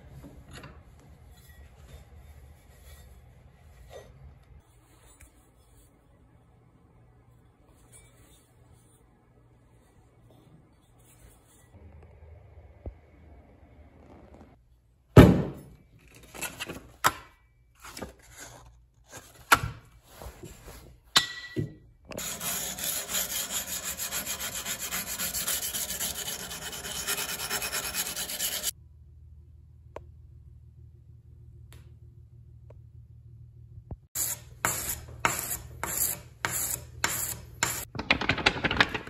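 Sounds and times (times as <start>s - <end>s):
sandpaper sanding metal: 22.2s - 28.7s.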